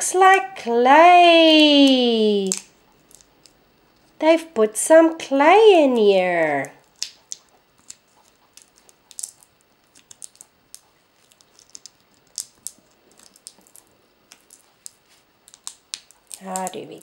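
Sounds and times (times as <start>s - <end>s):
plastic packet crinkling: 6.7s - 17.0s.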